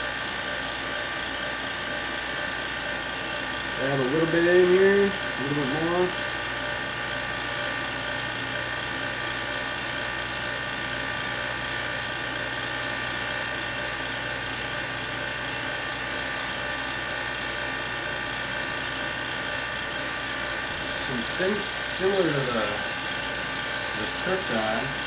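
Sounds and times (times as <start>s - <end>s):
low electrical hum: 3.5s - 25.0s
high-pitched electrical whine: 20.1s - 25.0s.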